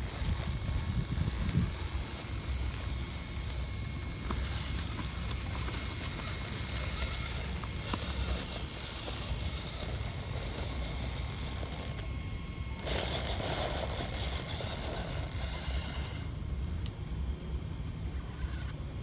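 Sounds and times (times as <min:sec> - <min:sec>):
steady low rumble: 0:00.0 - 0:19.0
thin steady whine: 0:00.0 - 0:19.0
stones knocking under tyres: 0:01.4 - 0:12.1.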